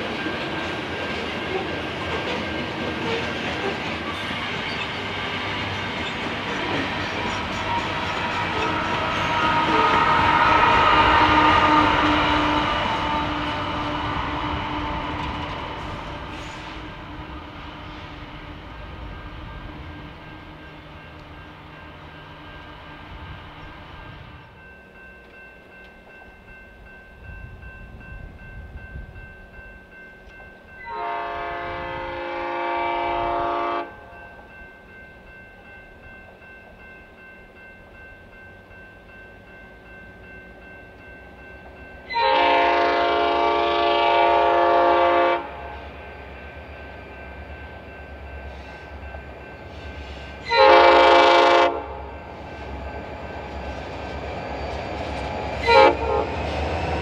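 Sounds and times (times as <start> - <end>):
locomotive air horn blasts: 7.5 - 18.0, 30.8 - 34.1, 42.1 - 45.9, 50.0 - 52.1, 55.6 - 56.4.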